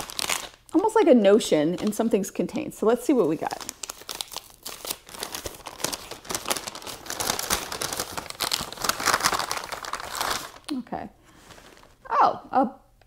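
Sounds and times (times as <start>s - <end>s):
paper bag crinkling: 0.0s - 0.8s, 3.2s - 10.7s, 11.3s - 12.0s.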